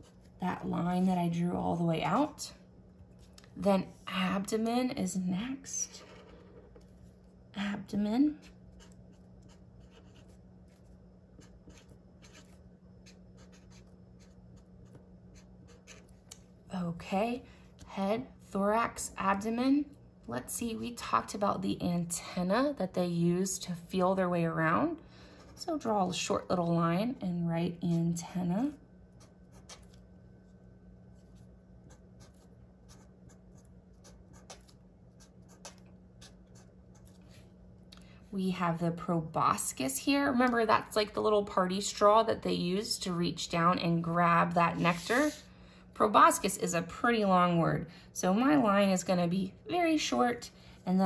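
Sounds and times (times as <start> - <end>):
low steady hum: 0.0 - 51.0
felt-tip marker scratching on paper: 8.4 - 10.8, 11.4 - 16.1.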